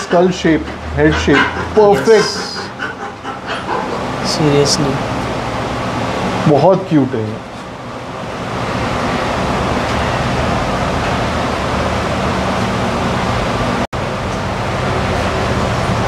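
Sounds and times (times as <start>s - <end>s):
steady rushing noise: 0.0s - 6.6s.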